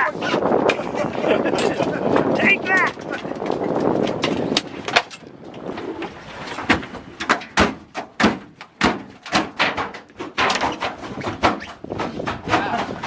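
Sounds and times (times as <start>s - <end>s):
heavy thuds on metal deck: 6.6s - 13.0s.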